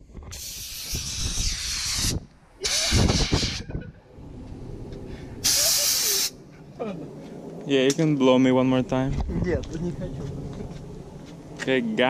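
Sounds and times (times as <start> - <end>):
paint spray gun hissing: 0.3 - 3.6, 5.4 - 6.3.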